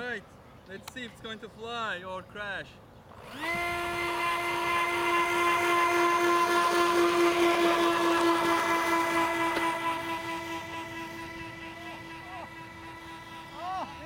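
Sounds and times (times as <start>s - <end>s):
electric ducted fans whining: 3.0s - 14.0s.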